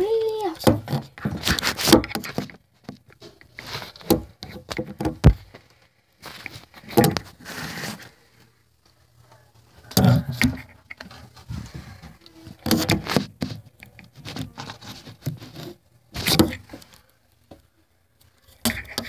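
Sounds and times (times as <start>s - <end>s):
rustling and knocks in closet: 10.1s - 16.9s.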